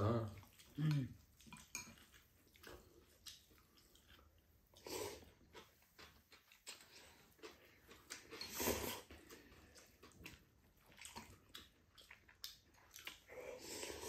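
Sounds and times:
chewing: 0.2 - 14.0
noodle slurp: 8.2 - 9.5.

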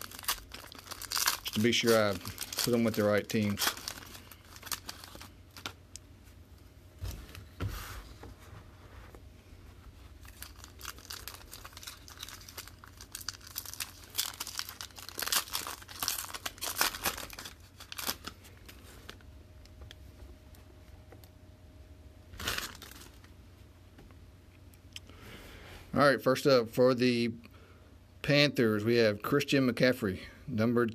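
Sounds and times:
foil wrapper crinkling: 0.0 - 5.8, 10.2 - 19.2, 22.4 - 23.3.

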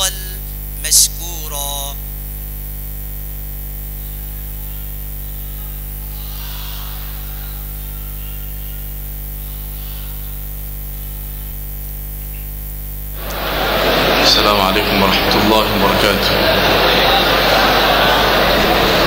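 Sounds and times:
electrical mains hum and buzz: 0.0 - 19.0.

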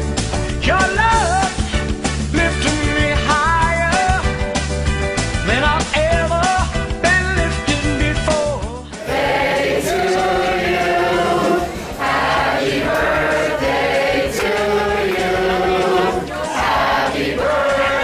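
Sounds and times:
crowd singing in unison: 8.9 - 18.0.

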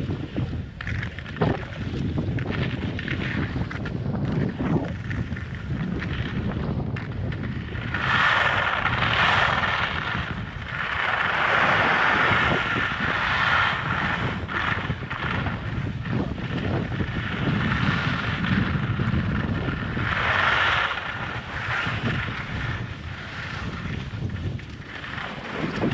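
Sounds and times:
wind buffeting microphone: 0.0 - 25.9
skis hissing on snow: 7.9 - 14.8.

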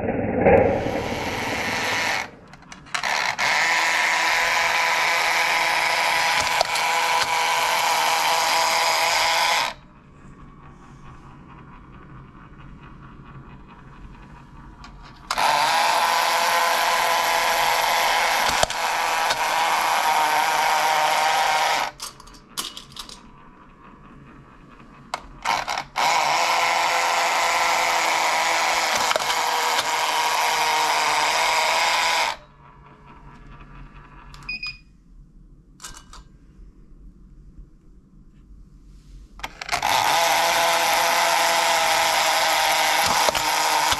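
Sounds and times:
toy motor and gears running: 2.8 - 9.8, 15.1 - 23.9, 25.1 - 32.5, 39.4 - 43.9.

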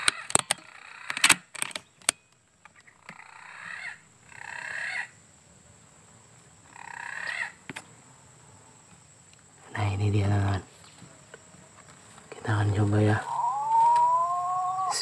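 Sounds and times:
air rifle clicks and knocks: 0.0 - 2.8
bird calling: 1.8 - 5.2, 6.6 - 7.9, 9.7 - 15.0.

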